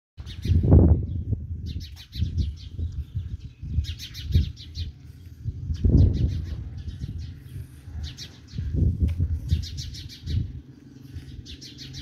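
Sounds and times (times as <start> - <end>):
small birds chirping: 0.2 - 12.0
low rumbling bumps: 2.3 - 12.0.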